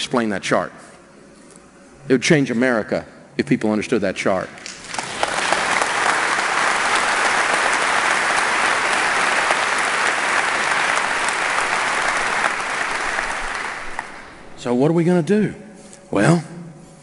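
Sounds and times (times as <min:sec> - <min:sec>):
audience applauding: 0:04.6 - 0:14.5.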